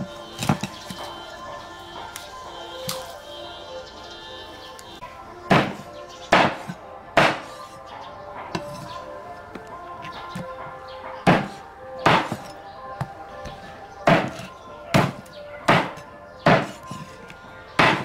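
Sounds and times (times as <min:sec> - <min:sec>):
cleaver chopping on wooden block: 0:00.4 - 0:01.0, 0:05.5 - 0:07.7, 0:11.2 - 0:17.2, 0:17.8 - 0:18.0.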